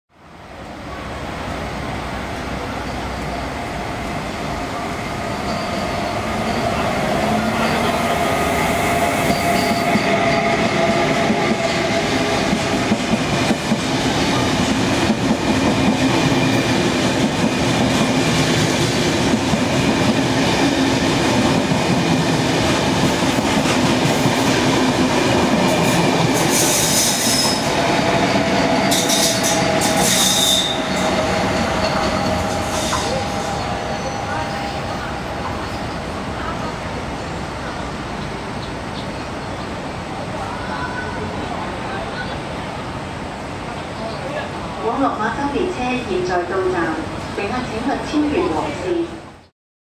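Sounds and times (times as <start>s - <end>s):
train wheels rumbling on rail: 0.6s - 48.8s
wheel squeal: 28.9s - 34.8s.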